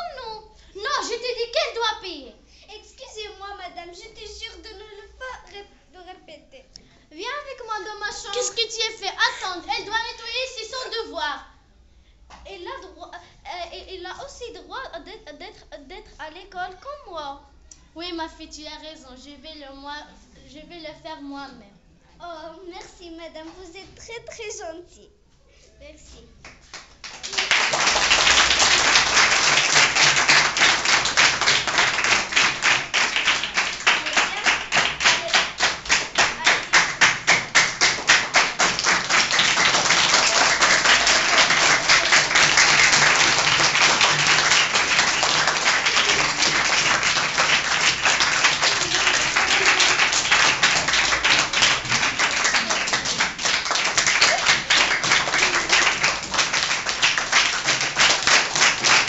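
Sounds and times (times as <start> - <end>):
children applauding: 26.6 - 59.0.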